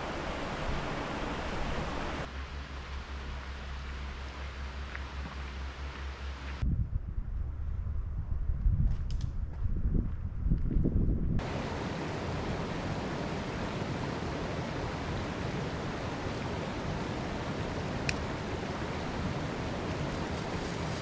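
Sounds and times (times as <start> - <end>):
creek flowing over rocks: 0.0 - 2.3.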